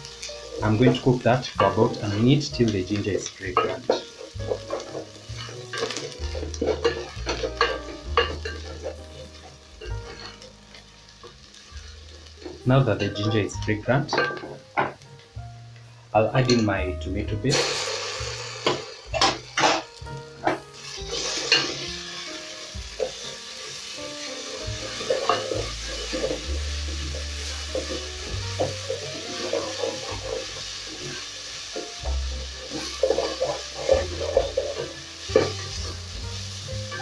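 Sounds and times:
onions sizzling in oil: 0.0s - 37.0s
soft background music: 0.0s - 37.0s
wooden spoon scraping a pot: 0.2s - 10.9s, 24.3s - 31.6s, 32.3s - 36.0s.

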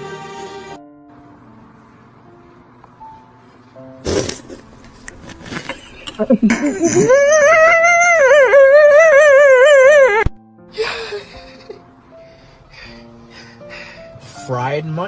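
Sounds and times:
person sobbing: 6.3s - 11.9s
person wailing: 6.7s - 10.3s.

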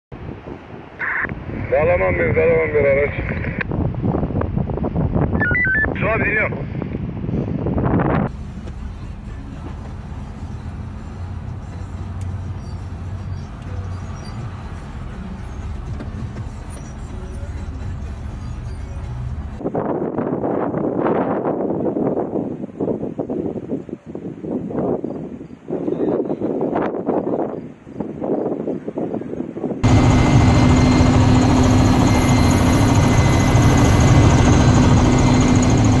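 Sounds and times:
vehicle engine rumbling: 0.2s - 19.7s, 29.4s - 36.0s
helicopter noise inside cabin: 29.8s - 36.0s.

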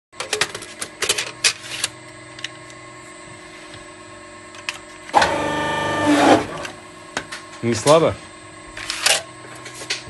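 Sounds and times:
steady machine hum: 0.2s - 10.0s
press pressing stroke hum: 5.0s - 6.8s.

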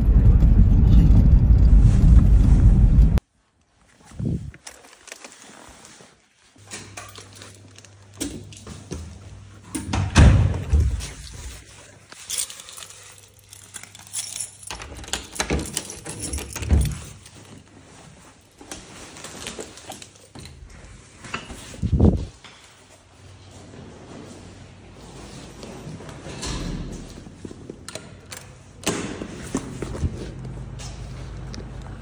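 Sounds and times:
keys jangling: 10.9s - 17.7s
door knobs and latches clicking: 14.4s - 17.2s.

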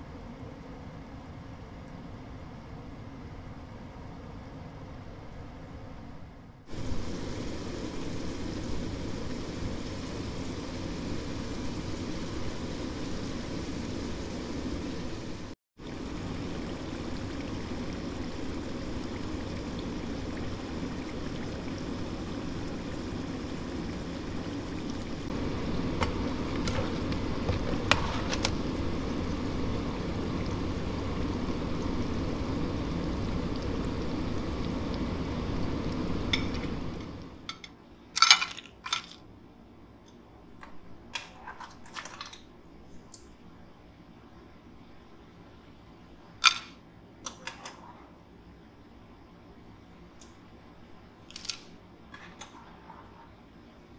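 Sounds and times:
food sizzling in hot oil: 6.7s - 37.6s.

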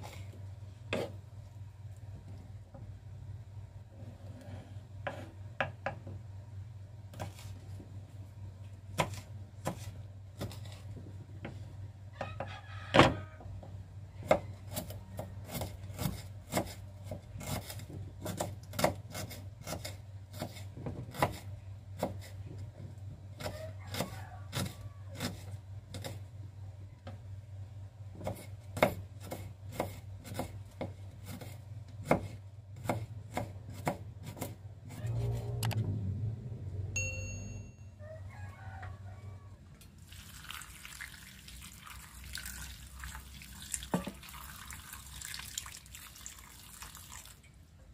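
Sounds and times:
low hum: 35.0s - 38.0s.

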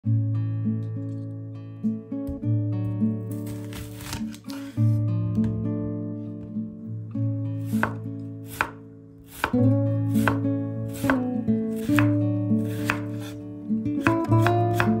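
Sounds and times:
soft background music: 0.0s - 15.0s
knife slicing onion on board: 3.3s - 5.0s, 7.6s - 15.0s.

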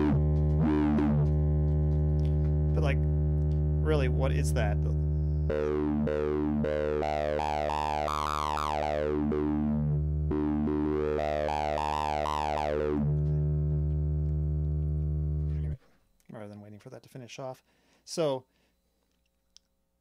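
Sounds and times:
synth drone with sweeping tone: 0.0s - 15.8s.

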